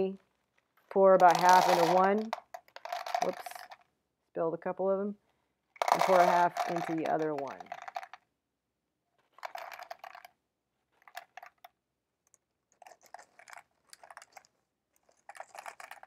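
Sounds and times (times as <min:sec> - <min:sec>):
dried beans rattling into tube: 0:00.9 - 0:03.8, 0:05.8 - 0:08.2, 0:09.3 - 0:10.4, 0:11.0 - 0:11.7, 0:12.3 - 0:16.0.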